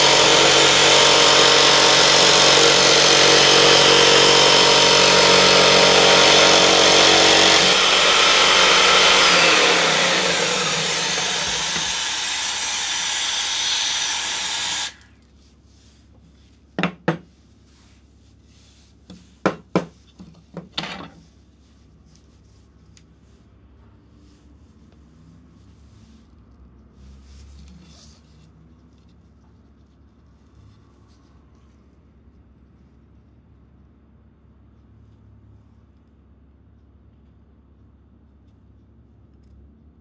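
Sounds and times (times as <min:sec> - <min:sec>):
jigsaw cutting plywood: 0:00.0 - 0:15.0.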